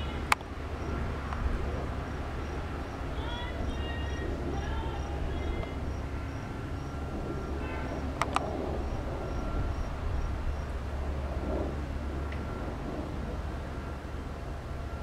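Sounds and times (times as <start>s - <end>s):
steady low rumble: 0.0s - 15.0s
sharp clicks: 8.2s - 8.5s.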